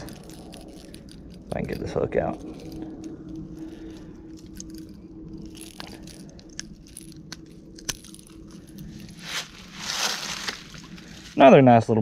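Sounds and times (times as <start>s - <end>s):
plastic lure and hooks rattling: 0.0s - 9.2s.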